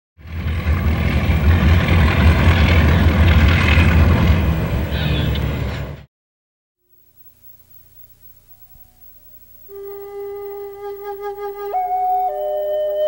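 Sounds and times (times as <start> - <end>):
diesel locomotive engine rumble: 0.2 - 6.1.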